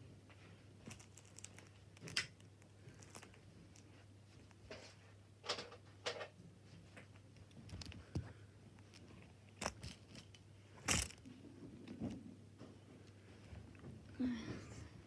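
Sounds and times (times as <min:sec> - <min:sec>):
toys rustling and knocking: 0:07.0 - 0:12.8.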